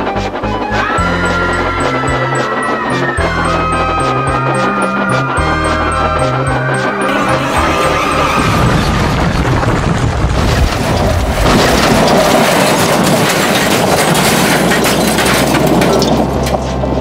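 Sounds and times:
train rattling past: 0.0 - 13.3.

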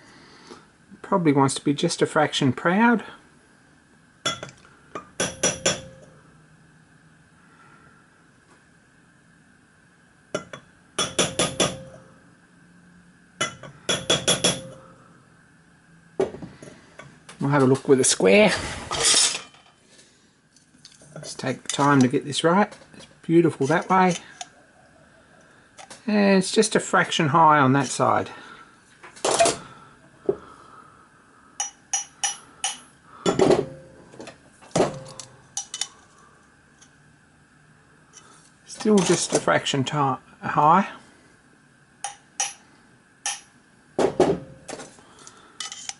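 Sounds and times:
hammer tapping metal: 4.3 - 6.1, 10.4 - 12.1, 13.4 - 14.8, 31.6 - 33.9, 42.0 - 42.6, 43.2 - 43.5
metal tools clinking on metal: 19.0 - 19.8, 23.0 - 24.5, 34.9 - 35.9, 45.6 - 45.9.

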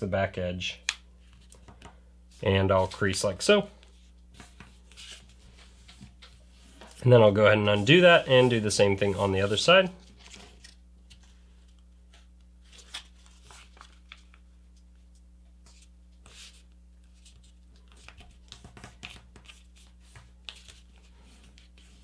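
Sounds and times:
paper rustling and crinkling: 3.8 - 11.8, 12.6 - 14.4.

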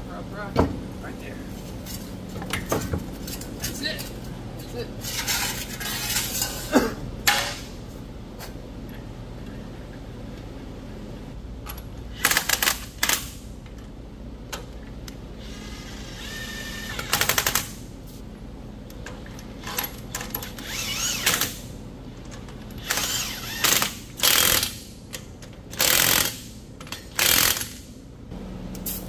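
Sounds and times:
impact wrench whirring and hammering: 12.1 - 13.4, 15.4 - 17.8, 19.6 - 21.7, 22.7 - 28.0.

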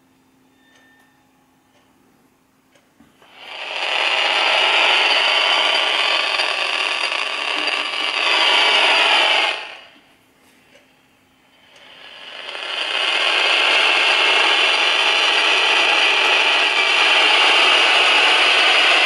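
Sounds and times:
radio interference rushing noise: 12.1 - 19.0.

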